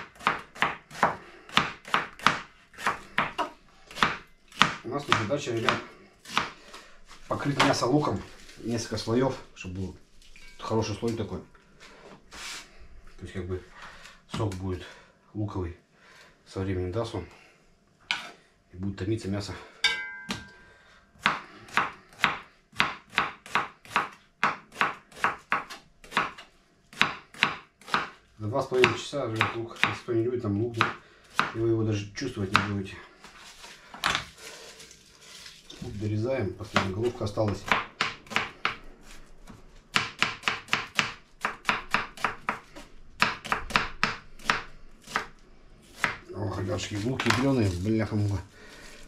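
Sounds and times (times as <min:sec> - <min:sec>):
knife chopping on cutting board: 0:00.0 - 0:06.6, 0:21.2 - 0:30.0, 0:30.7 - 0:31.6, 0:36.7 - 0:38.8, 0:39.4 - 0:45.3, 0:46.0 - 0:46.2.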